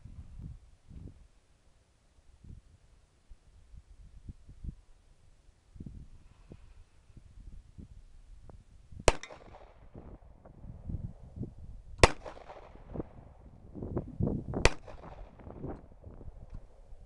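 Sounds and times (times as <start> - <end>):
handgun shots with echo: 9.1 - 9.9, 12.0 - 12.9, 14.6 - 15.4.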